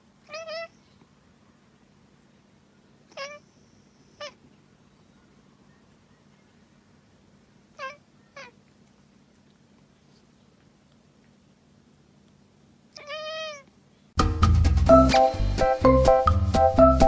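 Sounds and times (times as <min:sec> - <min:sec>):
cat meowing: 0:00.2 - 0:00.8, 0:03.1 - 0:03.5, 0:04.2 - 0:04.4, 0:07.7 - 0:08.6, 0:12.9 - 0:13.7.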